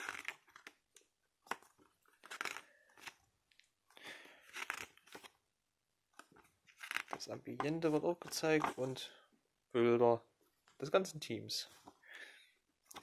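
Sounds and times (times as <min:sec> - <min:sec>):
paper pages rustling: 0:06.2 - 0:09.0.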